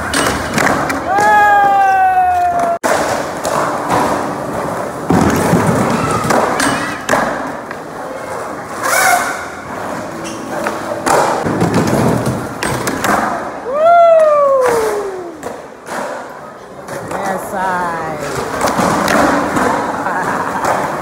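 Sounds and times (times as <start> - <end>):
skateboard landings and slaps: 0.0 - 7.8, 10.6 - 17.2, 18.4 - 21.0
skateboards thudding on floor: 0.0 - 7.9, 11.0 - 13.5, 18.4 - 21.0
crowd voices: 13.1 - 21.0.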